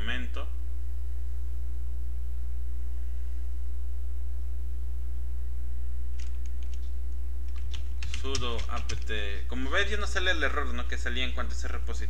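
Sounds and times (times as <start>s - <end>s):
low electrical hum: 0.0s - 12.0s
keyboard key clicks: 7.5s - 9.1s.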